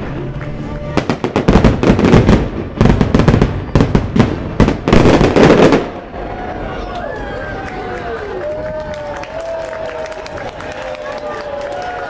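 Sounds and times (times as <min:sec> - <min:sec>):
fireworks bangs and crackles: 0:00.0 - 0:07.0.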